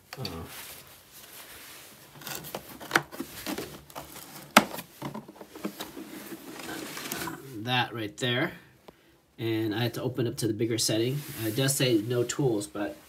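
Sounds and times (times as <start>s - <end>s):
plastic case rustling and rubbing: 1.0s - 7.4s.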